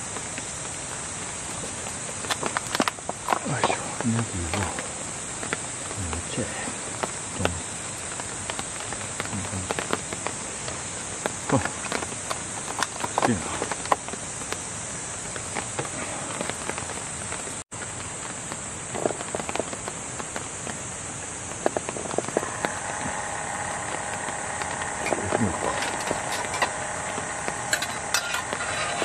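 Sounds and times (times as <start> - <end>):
night insects chorus: 0.0 - 29.0
small motor humming: 22.2 - 29.0.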